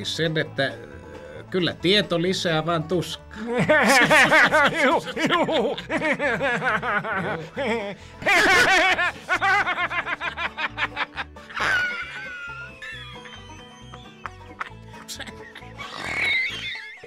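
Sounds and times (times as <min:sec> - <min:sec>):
background music: 0:00.0 - 0:17.0
rapid cackling laughter: 0:03.4 - 0:17.0.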